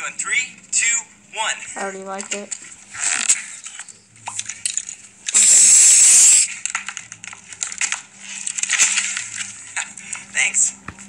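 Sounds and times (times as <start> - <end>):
loud hissing burst: 5.4 - 6.5.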